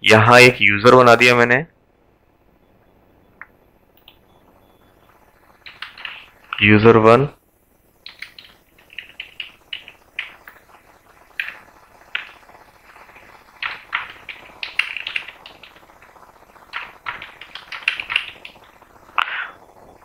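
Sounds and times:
keyboard typing: 5.6 - 6.8, 8.0 - 19.6.

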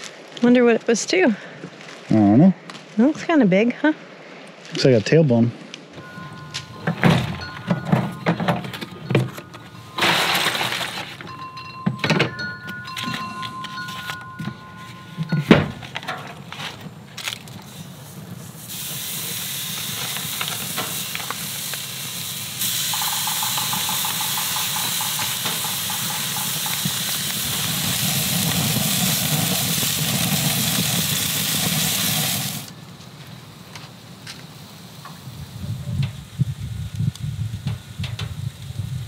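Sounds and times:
steaks sizzling on a grill: 17.7 - 32.7.

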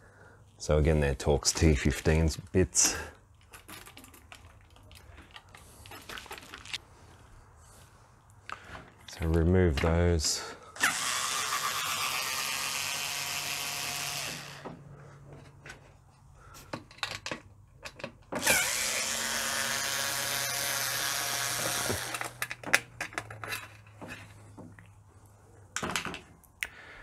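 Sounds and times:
handling clicks and knocks: 8.6 - 10.4, 16.6 - 18.4, 21.8 - 25.0
power drill running: 10.8 - 14.7, 18.4 - 22.4.

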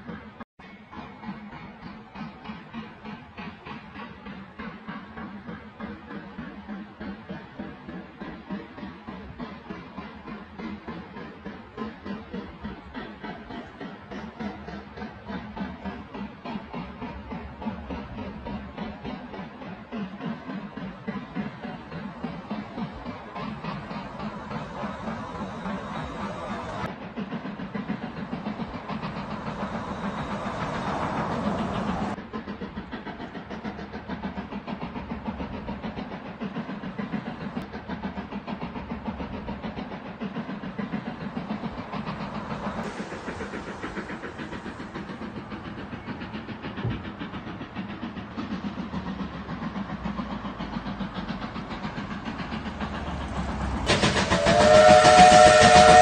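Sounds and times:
steam locomotive exhaust beating: 0.0 - 56.0
steam whistle chord: 54.2 - 56.0.

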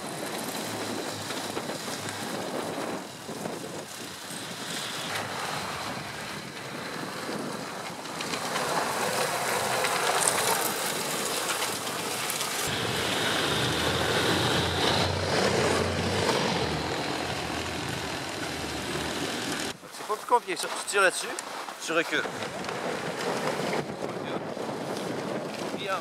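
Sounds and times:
wind noise on microphone: 0.0 - 19.8, 21.5 - 26.0
tracked vehicle running over snow: 0.0 - 26.0
low hum: 12.7 - 19.7.

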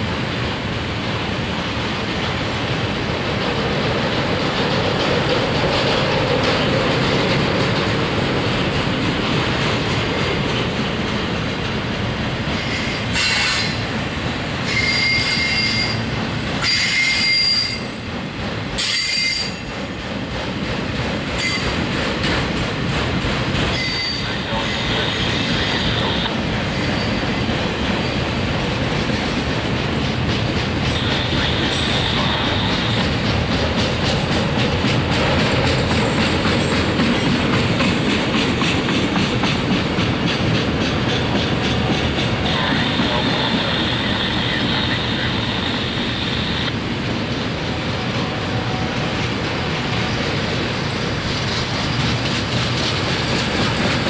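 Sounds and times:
train wheels rumbling on rail: 0.0 - 54.0
high-pitched wheel squeals: 14.6 - 18.0, 18.8 - 19.6.

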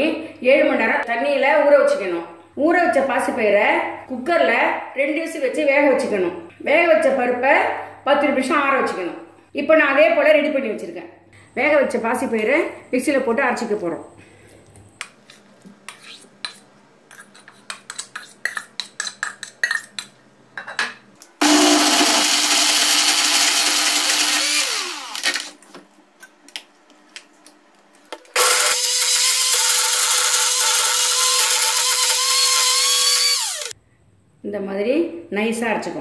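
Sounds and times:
electric mixer grinder running: 21.4 - 25.5, 28.4 - 33.7.

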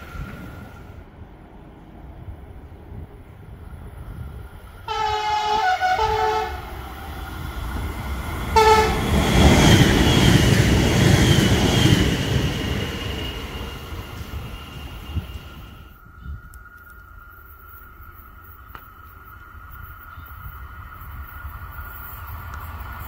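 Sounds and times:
train rushing past: 0.0 - 16.0, 19.0 - 23.0
train horn blasts: 4.9 - 7.0, 8.5 - 9.1.

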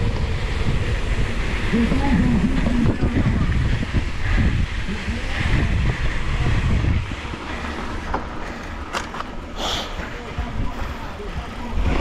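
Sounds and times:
wind buffeting microphone: 0.0 - 12.0
short hiss: 9.6 - 10.0.

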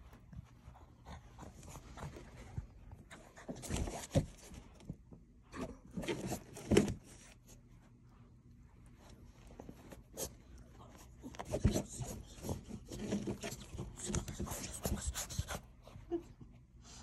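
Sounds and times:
puppy rustling on carpet: 0.0 - 4.9.

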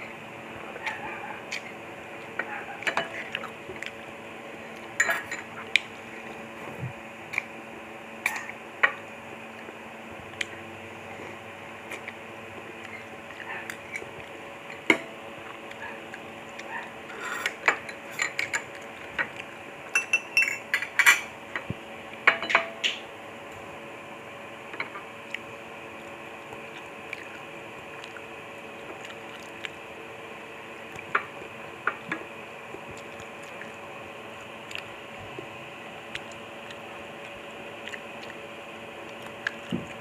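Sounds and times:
utensils clinking against a bowl: 2.4 - 3.5, 4.9 - 5.9, 17.1 - 21.3, 22.2 - 23.0.

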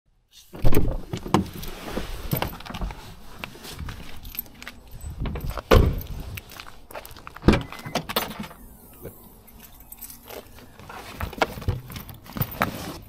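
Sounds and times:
rustling: 1.0 - 13.0
footsteps on asphalt: 2.5 - 12.0
keys jingling: 3.8 - 12.6
knocks and thumps: 5.2 - 6.2.

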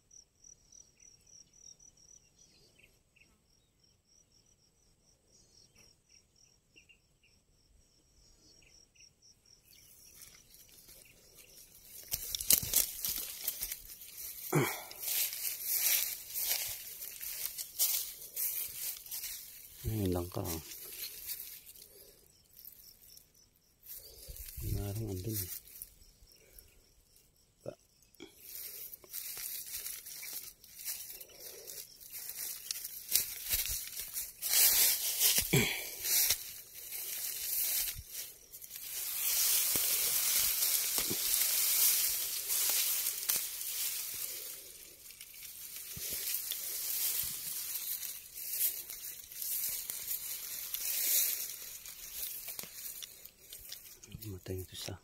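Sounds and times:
tall grass rustling: 9.6 - 26.8, 28.2 - 55.0
dry grass crunching underfoot: 9.7 - 23.2, 23.8 - 26.0, 28.2 - 55.0.

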